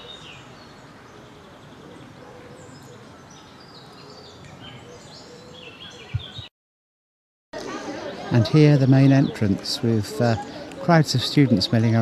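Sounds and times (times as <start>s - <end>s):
outdoor background rush: 0.0s - 6.5s, 7.5s - 12.0s
small birds chirping: 0.0s - 6.5s.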